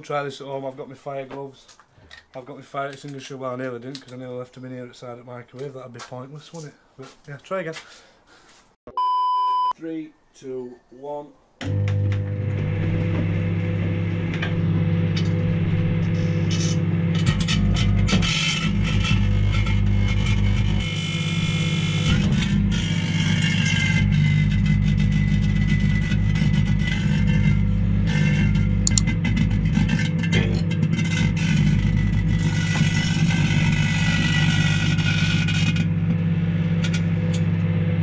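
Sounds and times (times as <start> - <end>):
microwave oven hum: 11.6 - 30.0, 33.1 - 38.0.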